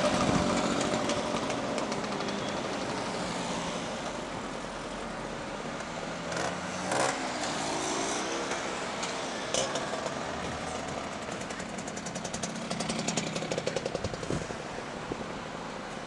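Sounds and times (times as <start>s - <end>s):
scooter engine puttering: 0.0s - 3.1s, 9.6s - 14.6s
cars rolling by: 0.0s - 16.0s.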